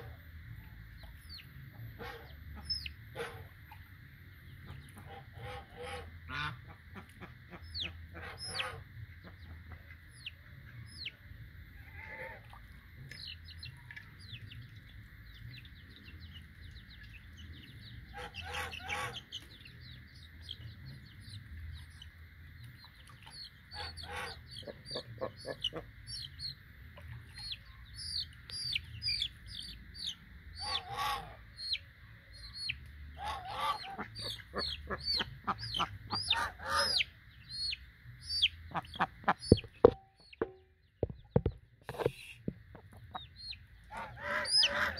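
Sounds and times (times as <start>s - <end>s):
chicks peeping: 13.0s - 44.9s
harsh chick calls: 18.1s - 19.6s, 27.4s - 31.8s, 32.4s - 41.3s, 41.9s - 44.9s.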